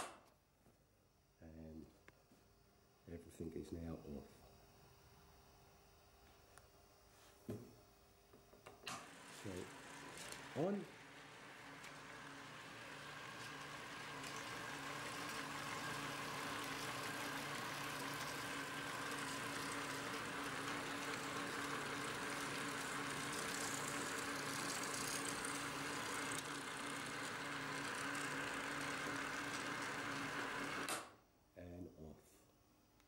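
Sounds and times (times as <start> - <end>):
small electric motors humming: 8.9 - 31.1.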